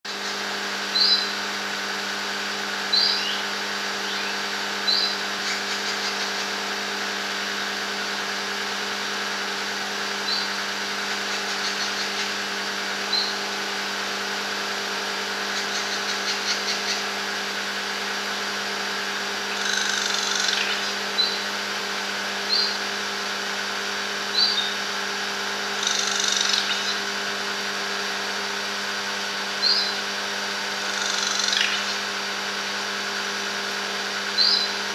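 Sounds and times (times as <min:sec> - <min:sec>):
steady machine hum: 0:00.1 - 0:34.9
treepie calling: 0:19.5 - 0:21.4, 0:25.8 - 0:27.0, 0:30.8 - 0:32.1.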